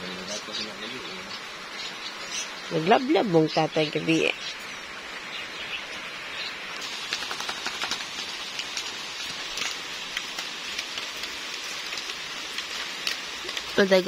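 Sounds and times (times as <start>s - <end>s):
light rain falling: 0.0s - 14.0s
raindrops ticking: 6.8s - 14.0s.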